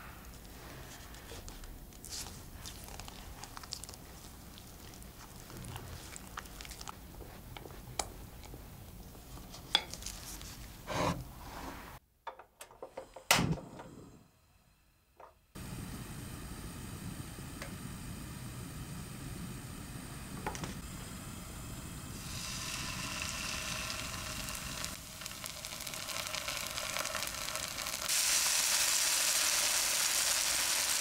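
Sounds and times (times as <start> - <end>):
gas burner igniter clicks: 17.5 - 17.9.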